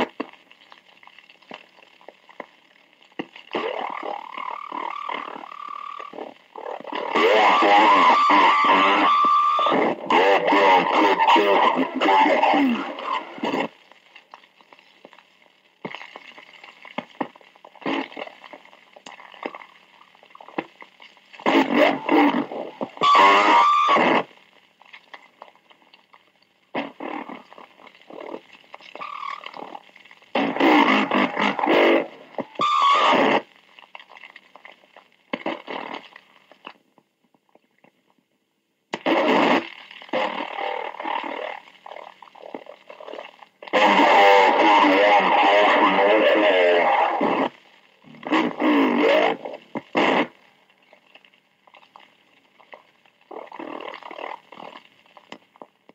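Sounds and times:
crackling radio static: 0.0s - 55.9s
bursts of noise: 3.4s - 14.0s, 21.4s - 24.6s, 26.7s - 33.6s, 43.6s - 50.7s.

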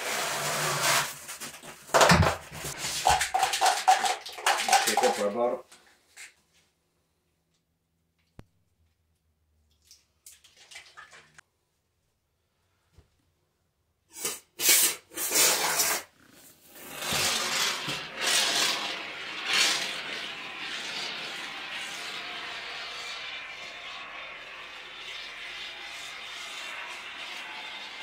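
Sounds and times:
spray foam hissing: 17.4s - 28.0s.

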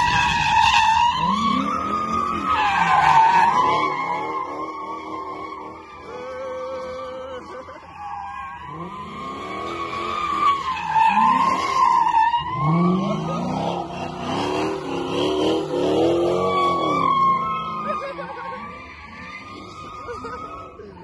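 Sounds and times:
tyres squealing: 0.0s - 15.1s, 16.1s - 21.0s
car engine revving hard: 12.4s - 18.2s.

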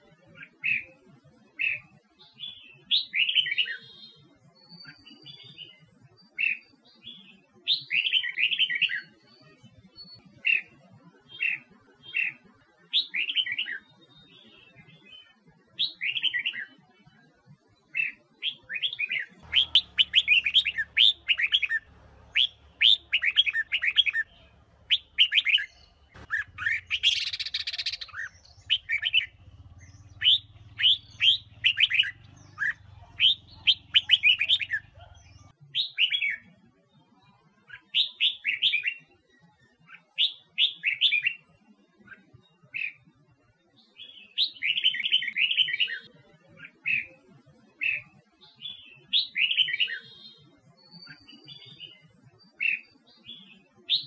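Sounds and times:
bird singing whistled notes: 1.6s - 16.8s, 17.9s - 36.5s, 37.7s - 43.0s, 47.8s - 54.0s
faint low hum: 19.4s - 35.5s.

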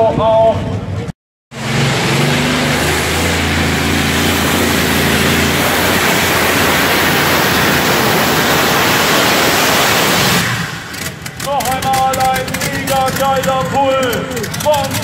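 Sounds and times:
loud rushing noise: 1.5s - 11.4s
tractor engine at full throttle: 1.5s - 15.0s.

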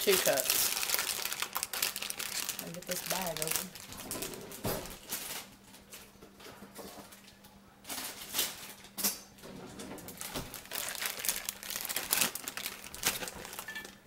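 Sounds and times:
plastic bag crinkling: 0.0s - 5.5s, 10.1s - 14.0s
faint steady hum: 0.0s - 14.0s.

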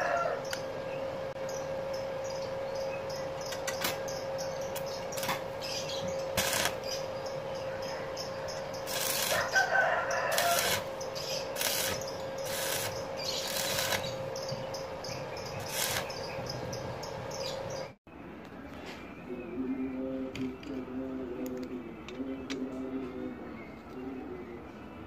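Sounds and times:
steady hum: 0.0s - 25.0s
arc welding crackling: 3.5s - 7.3s, 8.5s - 16.9s.

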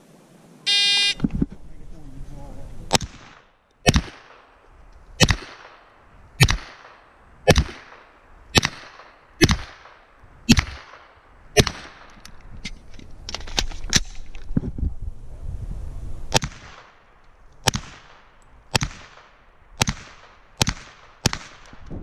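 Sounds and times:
gunshots with echo: 2.9s - 4.6s, 5.2s - 12.1s, 17.6s - 21.8s.

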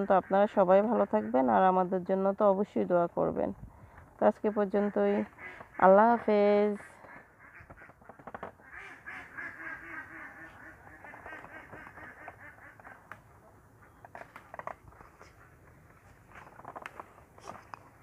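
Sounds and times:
faint duck quacking: 4.5s - 13.2s.

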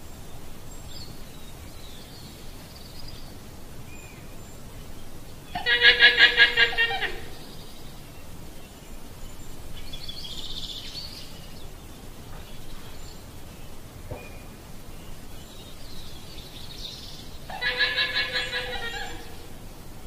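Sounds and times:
background hiss: 0.0s - 20.0s
llama calls: 5.5s - 7.4s, 17.5s - 19.4s.

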